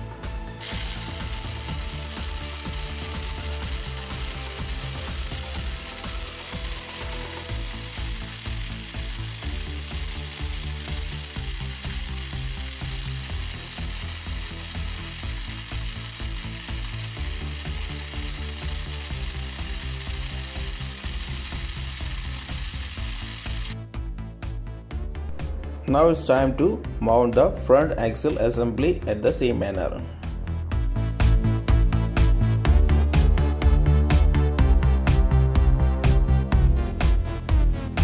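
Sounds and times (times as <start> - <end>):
small electric motor whirring: 0.0 - 23.8.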